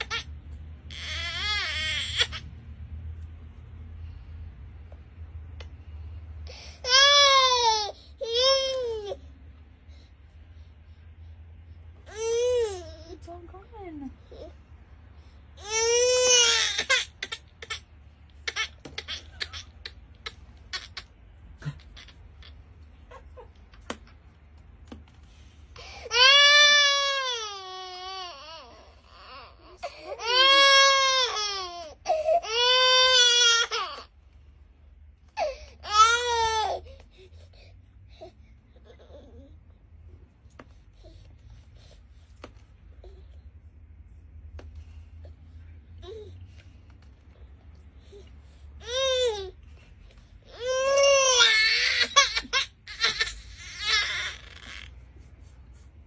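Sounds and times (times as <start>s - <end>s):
baby crying: 0.9s - 2.5s, 25.8s - 34.1s, 50.5s - 54.9s.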